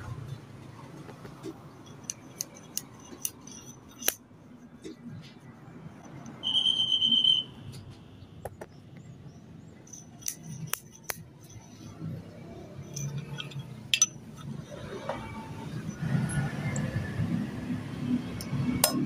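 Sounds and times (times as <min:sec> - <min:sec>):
metallic clinks and clicks: 0:01.4 - 0:04.9, 0:09.8 - 0:17.0.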